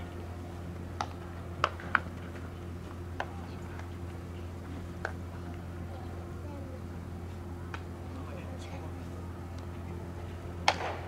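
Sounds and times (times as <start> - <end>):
steady low hum: 0.0 - 11.0
balls smacking into gloves: 1.0 - 2.1, 10.6 - 11.0
bat hitting ball: 10.6 - 11.0.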